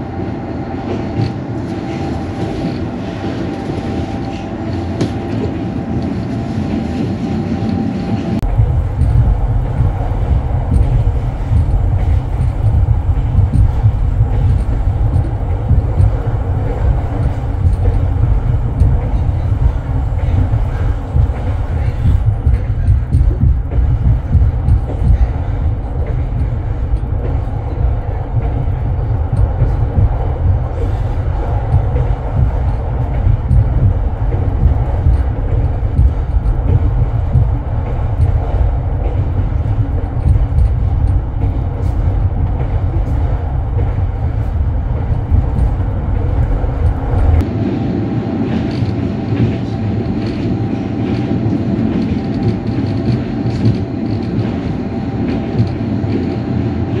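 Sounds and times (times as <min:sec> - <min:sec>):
passing train rolling noise: 0:00.0 - 0:57.0
train carriage rumble: 0:00.0 - 0:57.0
rattling clicks: 0:08.4 - 0:47.5.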